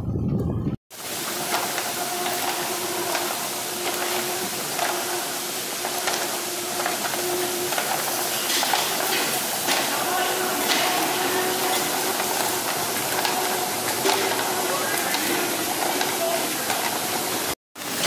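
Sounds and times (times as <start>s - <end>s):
sorting machine hissing: 0.9s - 18.0s.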